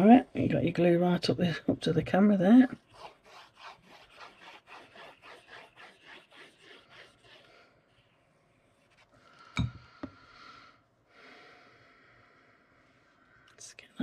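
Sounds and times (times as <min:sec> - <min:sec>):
hands rubbing card: 0:02.8 - 0:08.1
glue nozzle scraping card: 0:02.9 - 0:07.5.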